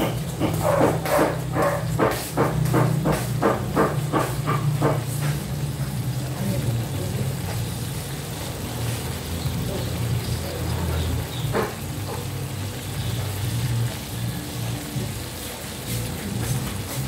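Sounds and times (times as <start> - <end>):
dog barking: 0.6 - 2.1.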